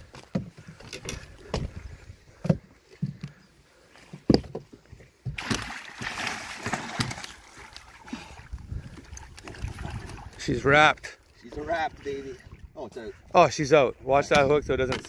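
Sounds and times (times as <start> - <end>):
fish splashing water: 5.3 - 8.4.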